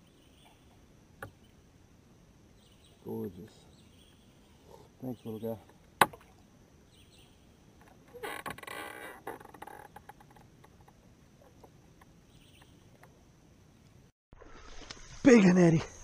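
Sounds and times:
insect drone: 0:00.0 - 0:16.0
bird chirps: 0:02.5 - 0:05.6, 0:06.8 - 0:07.4, 0:12.3 - 0:12.8.

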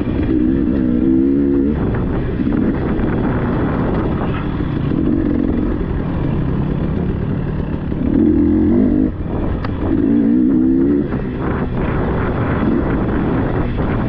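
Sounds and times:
dirt bike engine revving: 0:00.0 - 0:14.0.

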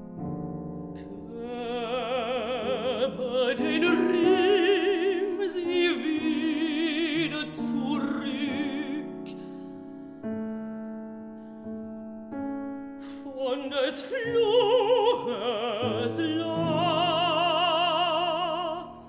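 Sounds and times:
grand piano accompaniment: 0:00.0 - 0:19.0
woman singing classically with vibrato: 0:01.0 - 0:09.4, 0:13.0 - 0:19.0.

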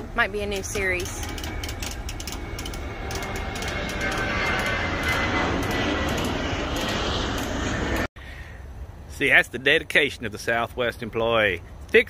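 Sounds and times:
engine running: 0:00.0 - 0:08.1
thin high whine: 0:00.0 - 0:08.1.

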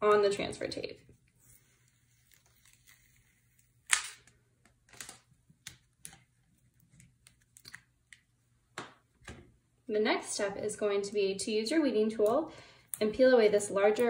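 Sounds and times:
paper backing peeled off vinyl: 0:01.4 - 0:03.8.

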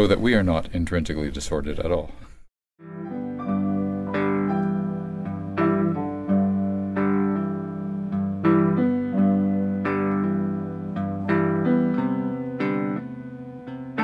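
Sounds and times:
slow guitar music: 0:02.8 - 0:14.0.

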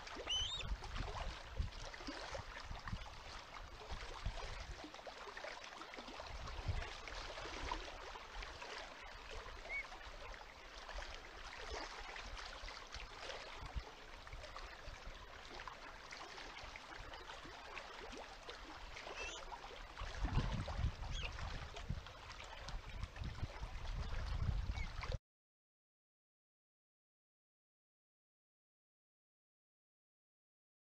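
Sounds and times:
wind buffeting on microphone: 0:20.0 - 0:25.2.

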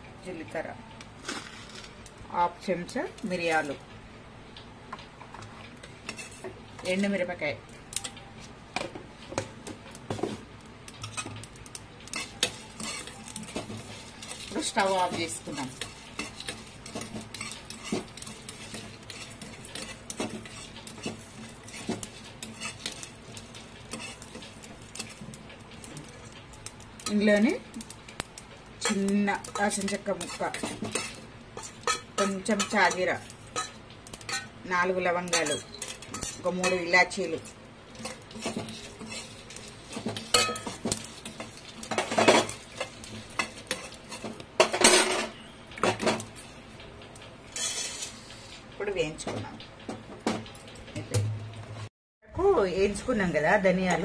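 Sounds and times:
seeds rattling: 0:01.2 - 0:02.0
seeds scraping and rattling in pan: 0:01.2 - 0:02.2, 0:05.8 - 0:07.0, 0:10.0 - 0:45.2, 0:46.0 - 0:48.6.

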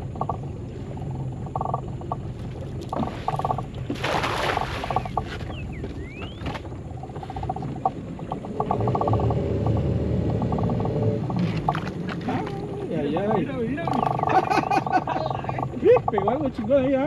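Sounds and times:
low steady hum: 0:00.0 - 0:17.0
cast net splashing into water: 0:03.0 - 0:05.1.

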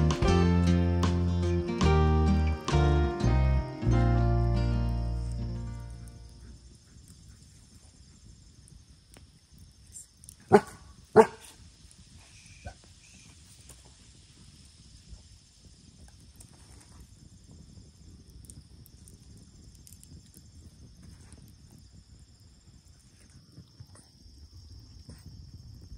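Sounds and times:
dog barking: 0:10.5 - 0:11.5.

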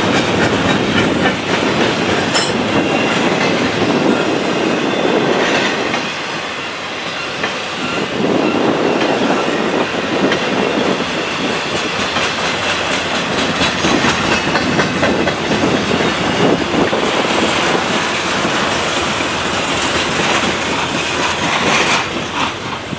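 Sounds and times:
train wheels rushing on rail: 0:00.0 - 0:22.9
wheels clicking over rail joints: 0:11.6 - 0:22.9.

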